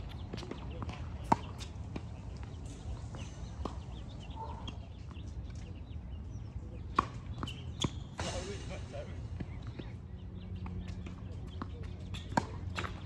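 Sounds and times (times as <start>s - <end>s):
tennis ball bouncing: 0.0s - 2.2s, 10.6s - 13.0s.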